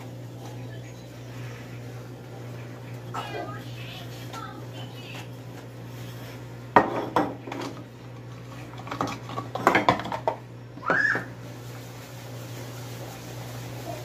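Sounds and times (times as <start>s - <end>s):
plastic dishes clattering in sink: 6.7s - 11.3s.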